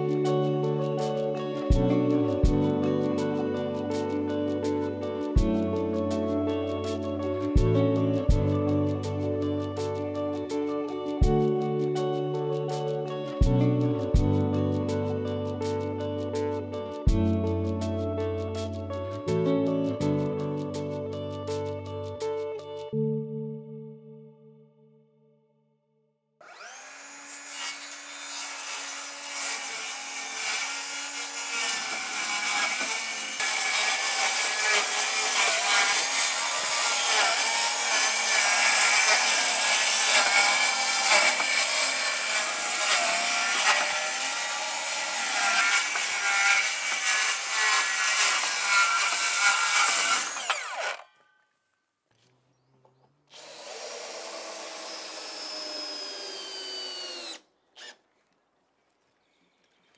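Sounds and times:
circular saw cutting wood: 0:26.4 - 0:51.2, 0:53.3 - 0:58.0.

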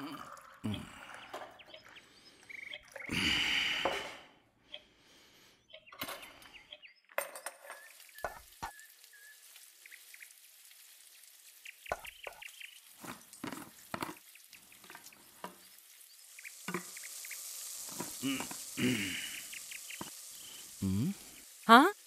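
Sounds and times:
food sizzling in a pan: 0:07.7 - 0:22.0.

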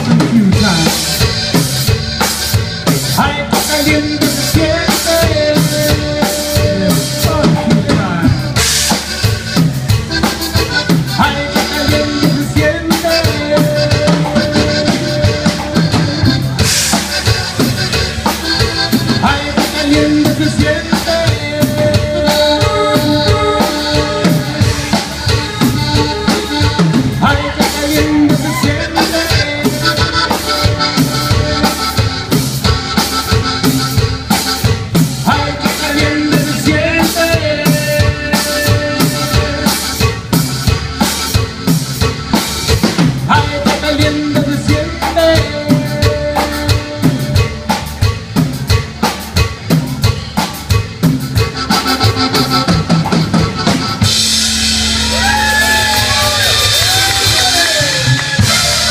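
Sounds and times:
drum kit beat: 0:00.0 - 0:58.9
electric bass: 0:00.0 - 0:58.9
held melody line: 0:00.0 - 0:58.9.

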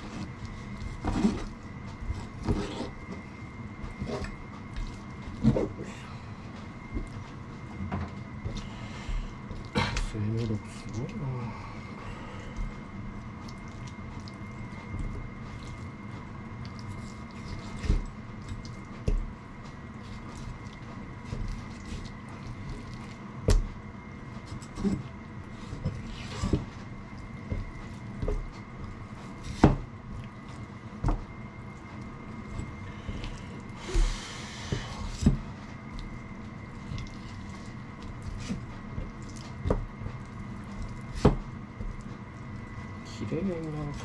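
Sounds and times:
faint steady hum: 0:00.0 - 0:44.0.

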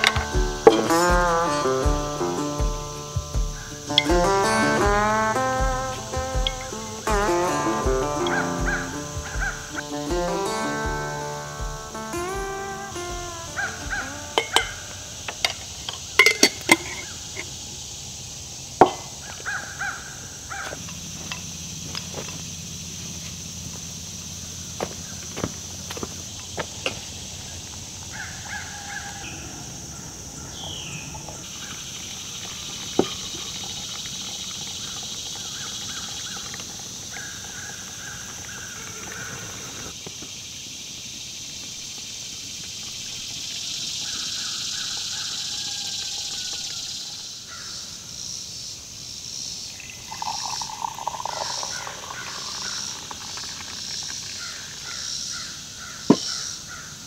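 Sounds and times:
hot water pouring: 0:00.0 - 0:17.1, 0:31.5 - 0:40.0, 0:49.8 - 0:55.0
birds calling: 0:00.0 - 0:48.2, 0:49.5 - 0:57.0
insect drone: 0:00.0 - 0:57.0
kitchenware clinking on wooden table: 0:14.4 - 0:14.8, 0:16.2 - 0:17.0.

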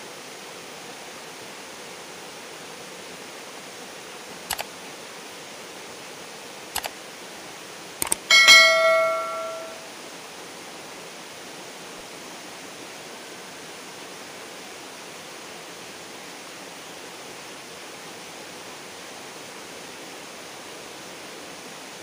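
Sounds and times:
bell chime: 0:08.3 - 0:09.8.

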